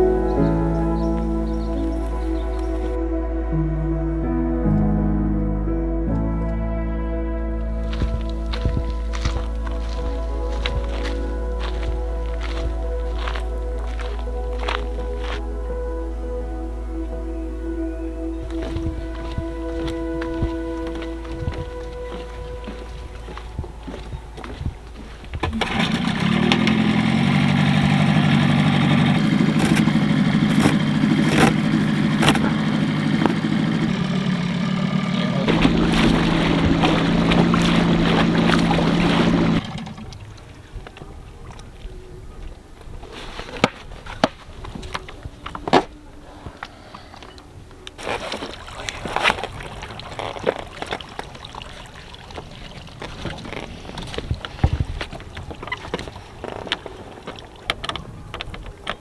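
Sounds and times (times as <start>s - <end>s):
outboard motor running: 25.4s - 40.5s.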